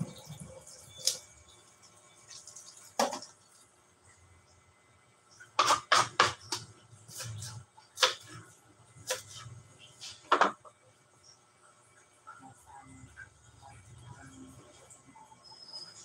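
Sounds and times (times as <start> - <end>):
knife chopping on plastic board: 5.6 - 8.3.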